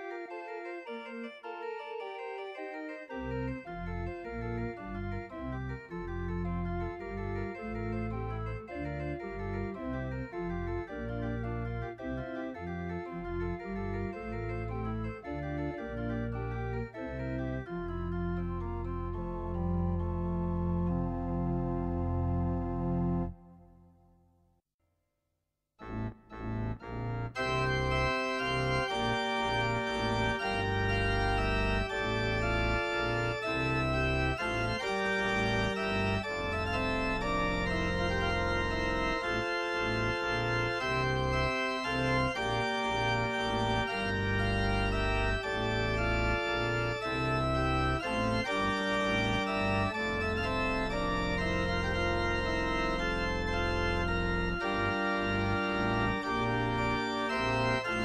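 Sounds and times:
organ playing chords: 0:00.0 - 0:23.8, 0:25.8 - 0:58.0.

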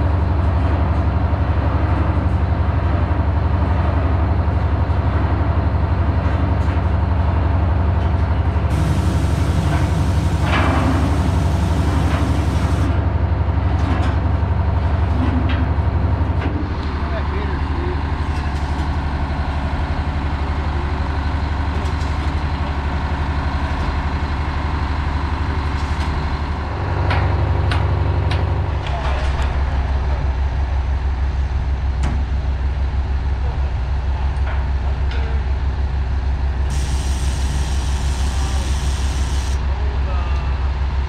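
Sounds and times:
heavy diesel engine running: 0:00.0 - 0:41.0.

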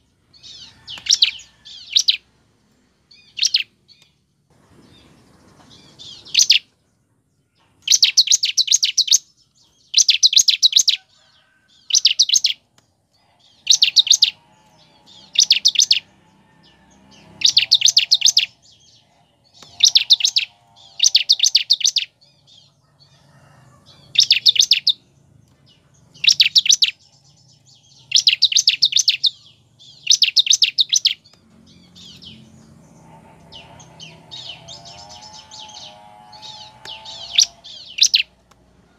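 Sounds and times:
bird singing high-pitched bursts: 0:00.3 - 0:02.3, 0:03.1 - 0:04.0, 0:05.7 - 0:06.7, 0:07.8 - 0:11.1, 0:11.8 - 0:12.6, 0:13.3 - 0:22.6, 0:24.1 - 0:25.0, 0:26.1 - 0:38.4.

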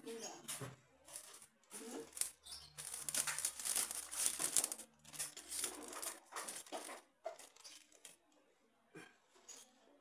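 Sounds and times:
plastic bag crinkling: 0:01.0 - 0:08.2.

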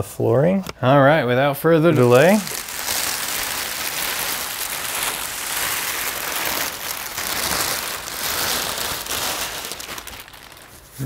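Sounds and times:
plastic bags crinkling: 0:01.4 - 0:11.0.

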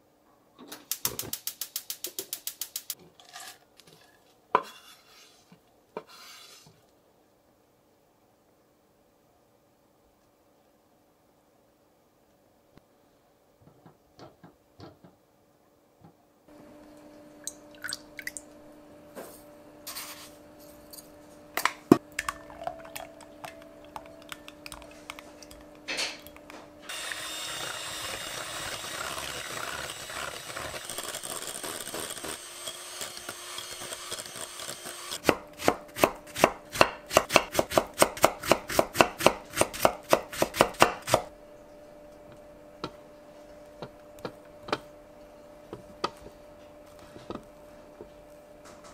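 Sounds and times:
spatula scraping in a pot: 0:03.2 - 0:06.8
electric hand mixer running: 0:26.9 - 0:35.2.

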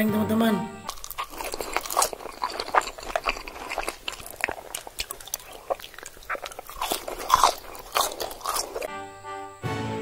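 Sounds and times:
man chewing fries: 0:00.9 - 0:08.9.

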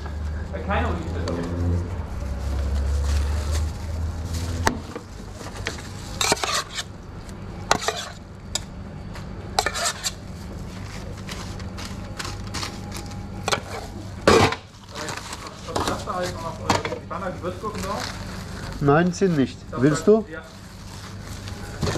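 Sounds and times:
low steady hum: 0:00.0 - 0:21.9
utensil scraping a steel pan: 0:06.1 - 0:06.9, 0:07.7 - 0:08.2, 0:09.6 - 0:10.2.

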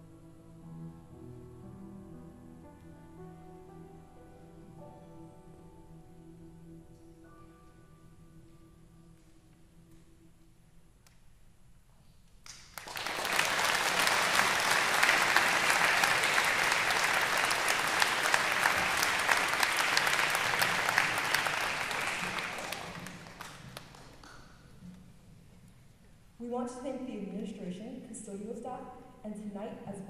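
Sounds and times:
audience clapping: 0:12.4 - 0:24.5.

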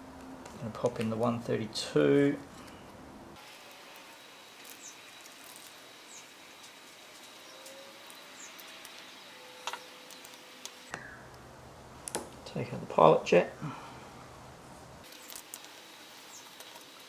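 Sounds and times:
low steady hiss: 0:00.0 - 0:17.0
faint high chirps: 0:10.9 - 0:11.4.

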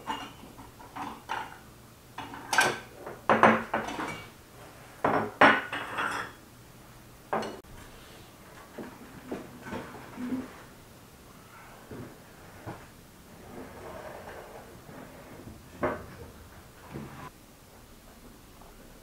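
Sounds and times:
porcelain plates clinking: 0:02.2 - 0:04.3, 0:05.0 - 0:06.4.

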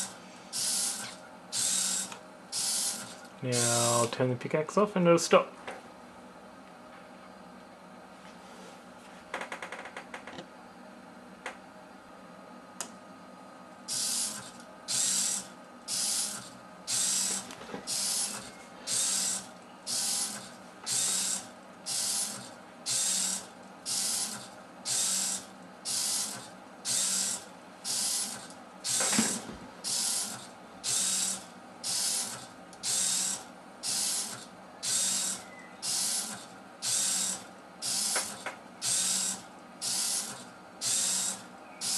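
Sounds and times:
servo motors whirring: 0:00.0 - 0:04.0, 0:13.9 - 0:41.9.

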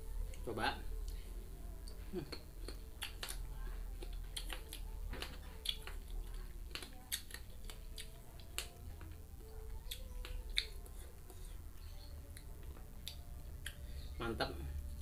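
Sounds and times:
low steady hum: 0:00.0 - 0:15.0
crunching and chewing fruit: 0:00.2 - 0:15.0
wet mouth clicks: 0:01.9 - 0:03.4.

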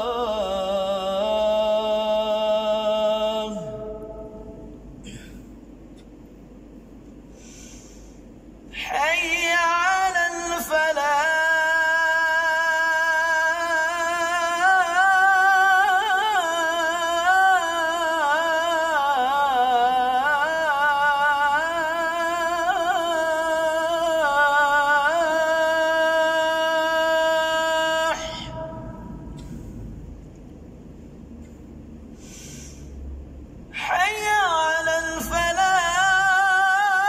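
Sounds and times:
man chanting call to prayer: 0:00.0 - 0:04.7, 0:08.8 - 0:29.6, 0:33.8 - 0:37.0.

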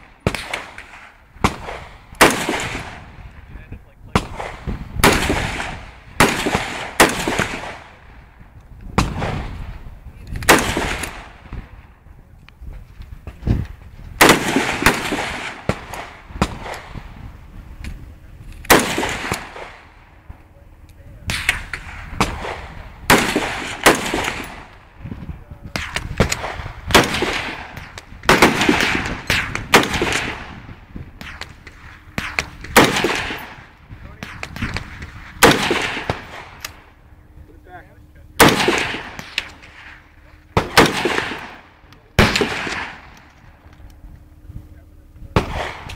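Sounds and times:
rifle shots: 0:00.0 - 0:03.3, 0:04.1 - 0:08.3, 0:09.0 - 0:09.8, 0:10.4 - 0:11.8, 0:14.2 - 0:17.2, 0:18.6 - 0:20.4, 0:21.2 - 0:24.9, 0:25.7 - 0:37.0, 0:38.4 - 0:43.5, 0:45.3 - 0:45.9.

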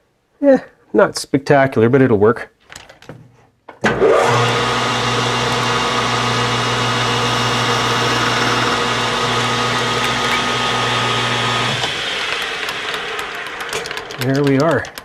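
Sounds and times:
metal lathe humming and whining: 0:04.2 - 0:14.2
cutting tool on metal: 0:05.1 - 0:14.0.

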